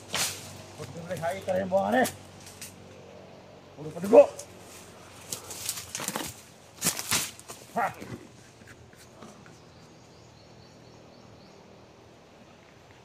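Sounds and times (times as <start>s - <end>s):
quiet forest background: 0.0s - 13.0s
footsteps crunching through dry leaves: 4.4s - 8.5s.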